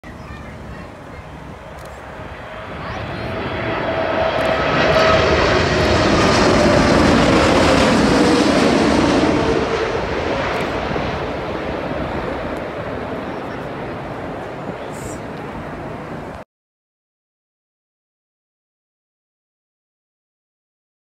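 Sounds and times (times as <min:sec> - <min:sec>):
jet airliner passing overhead: 0:00.1 - 0:16.4
jet engine whine: 0:00.4 - 0:16.4.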